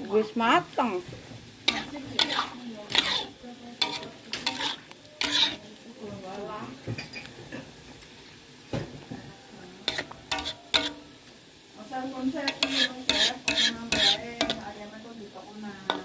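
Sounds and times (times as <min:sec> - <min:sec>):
metal spatula scraping a wok: 0:01.4 - 0:05.9, 0:09.8 - 0:11.2, 0:12.1 - 0:15.2, 0:15.8 - 0:16.0.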